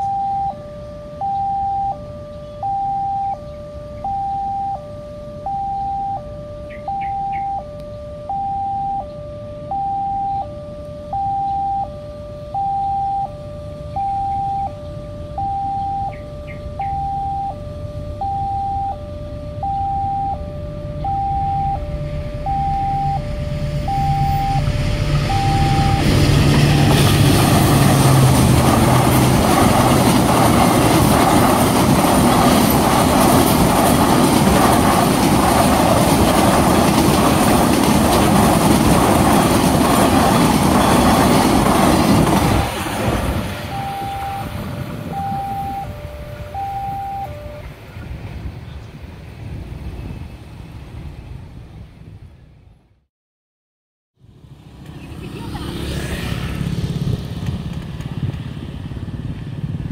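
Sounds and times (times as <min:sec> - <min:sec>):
two-tone crossing alarm: 0:00.0 - 0:47.9
train rumble: 0:09.4 - 0:52.8, 0:54.4 - 0:59.9.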